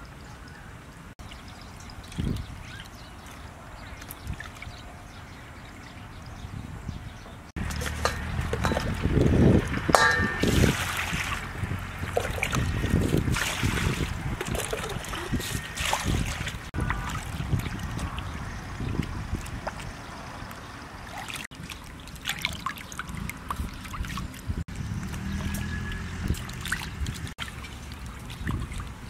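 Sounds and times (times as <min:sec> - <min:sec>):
water trickling and dripping: 0:01.2 - 0:06.4, 0:07.6 - 0:29.0
short ringing clink: 0:10.0 - 0:10.4.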